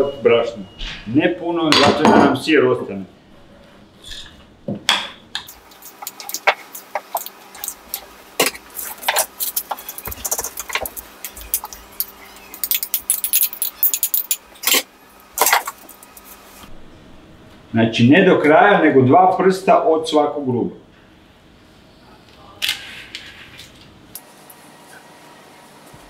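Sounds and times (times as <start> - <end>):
spoon clinking and scraping bowl: 5.5 - 16.4.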